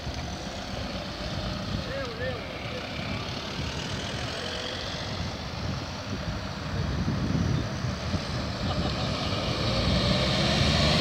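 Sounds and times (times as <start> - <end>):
car driving past: 8.2 - 11.0.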